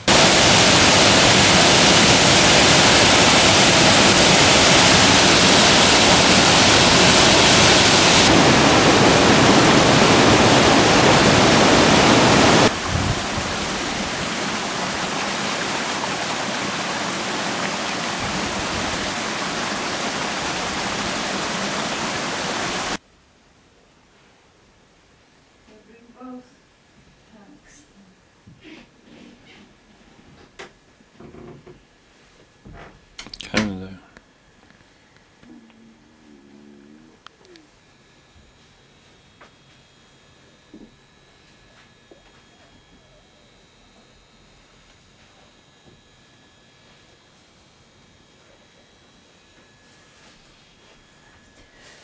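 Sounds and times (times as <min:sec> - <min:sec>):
waterfall rushing: 0:00.0 - 0:23.0
stream rushing over rocks: 0:00.1 - 0:23.0.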